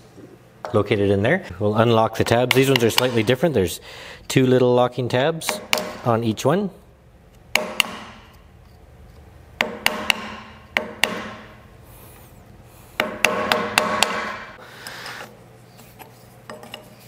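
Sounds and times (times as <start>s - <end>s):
hammer striking steel punch: 5.4s - 6.1s, 7.5s - 8.4s, 9.6s - 11.6s, 13.0s - 14.6s.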